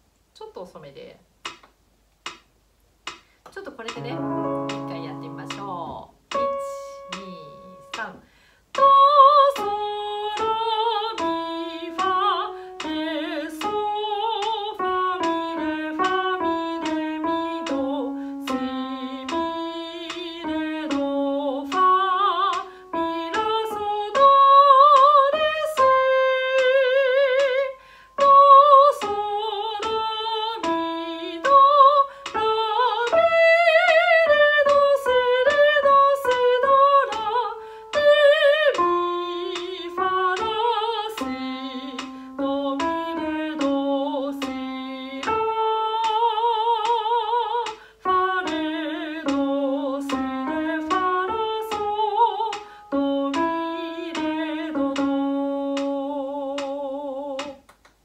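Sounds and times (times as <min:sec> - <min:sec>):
soprano singing: 0:03.8 - 0:57.7
singer breathing: 0:08.2 - 0:08.7, 0:27.8 - 0:28.2, 0:32.1 - 0:32.3, 0:37.6 - 0:37.9, 0:47.8 - 0:48.0, 0:52.6 - 0:52.9.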